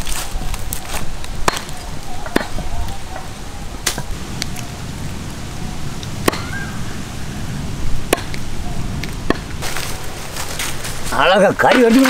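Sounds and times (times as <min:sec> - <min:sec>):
cleaver chopping on wooden block: 0:01.4 - 0:02.6.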